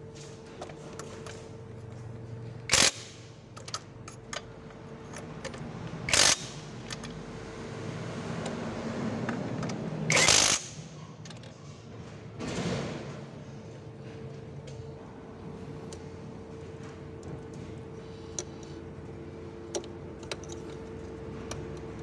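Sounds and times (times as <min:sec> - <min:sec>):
ratchet clicking: 0:02.7 - 0:04.5, 0:05.1 - 0:07.2, 0:10.1 - 0:10.8
tool clicks and knocks: 0:19.7 - 0:22.0.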